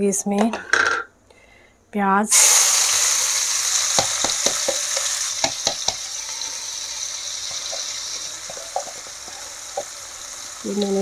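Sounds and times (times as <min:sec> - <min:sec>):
onion sizzling in hot oil: 0:02.3 - 0:11.0
plastic bowl tapping a pan: 0:03.9 - 0:06.1, 0:07.4 - 0:10.0.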